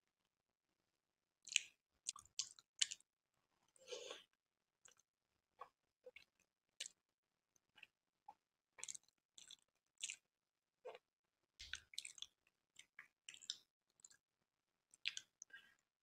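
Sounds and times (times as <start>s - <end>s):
wet chewing: 1.5s - 3.0s, 8.8s - 10.2s, 11.6s - 14.2s.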